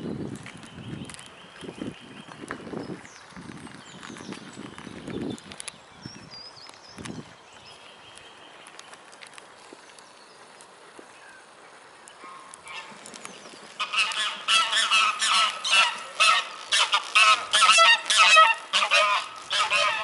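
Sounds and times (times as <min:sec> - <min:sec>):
geese honking: 0:12.2 - 0:13.0, 0:13.7 - 0:20.0
geese taking flight: 0:13.7 - 0:20.0.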